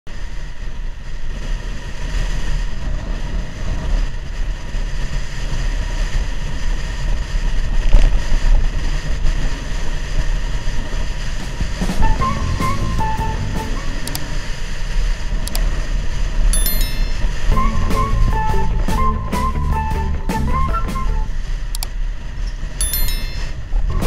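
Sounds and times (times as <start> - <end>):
low road rumble: 0.1 - 24.0
wind buffeting microphone: 0.2 - 16.6.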